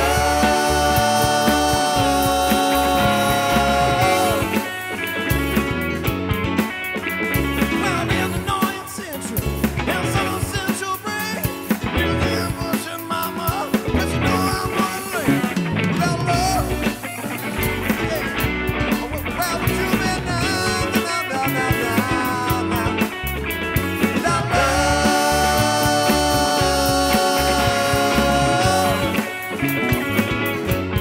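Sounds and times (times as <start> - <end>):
person singing: 0.0 - 5.0, 17.9 - 23.1, 24.0 - 29.6
rock band playing: 0.0 - 31.0.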